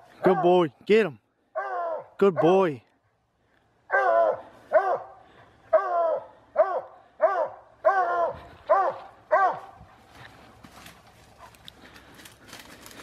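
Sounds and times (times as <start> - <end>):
dog barking: 0.2 - 0.6, 1.5 - 2.6, 3.9 - 9.8.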